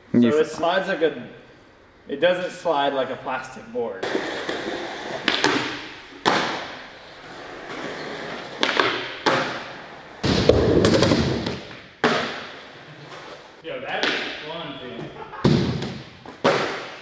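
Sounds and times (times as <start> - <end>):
skateboard clacks and thuds: 4.0 - 6.8, 8.4 - 12.5
skateboard grinding: 4.0 - 13.6
skateboard wheels rolling: 4.0 - 13.6.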